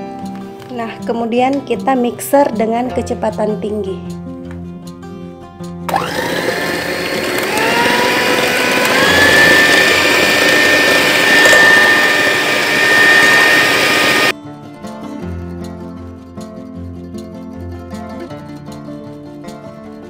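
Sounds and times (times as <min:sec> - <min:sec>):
electric hand mixer whirring: 0:05.9 - 0:14.3.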